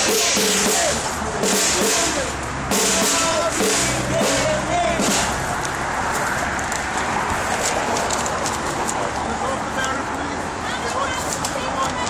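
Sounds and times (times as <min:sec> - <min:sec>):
rhythmic drum-like hits: 0:00.0 - 0:05.6
murmur of crowd voices: 0:00.0 - 0:12.0.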